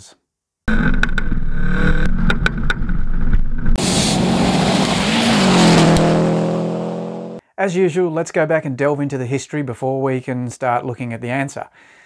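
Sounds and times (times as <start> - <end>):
rally car engine running: 0.7 - 7.4
car passing by rush: 3.8 - 7.4.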